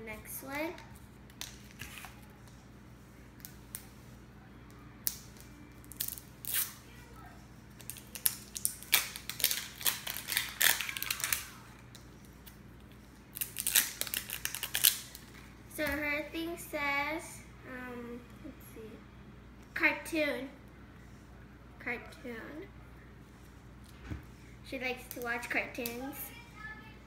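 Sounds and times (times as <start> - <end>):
plastic wrapping crinkling and tearing: 7.8 - 12.0, 13.3 - 15.4.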